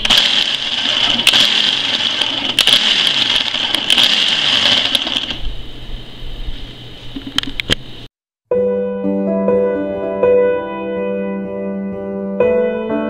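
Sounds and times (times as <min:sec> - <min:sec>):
kitchen appliance motor whirring: 0:00.0 - 0:05.5.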